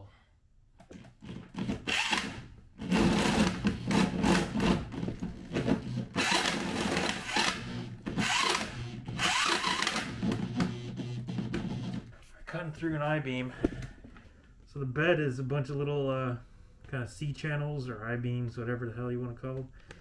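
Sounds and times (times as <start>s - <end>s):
electric drill hole saw cutting wood: 1.6s - 4.8s, 5.5s - 12.0s.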